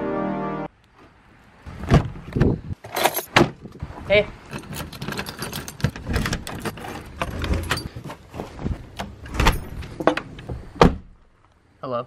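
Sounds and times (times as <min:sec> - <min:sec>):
keys jangling: 0:02.9 - 0:03.3, 0:04.5 - 0:08.0
door opening: 0:04.5 - 0:11.2.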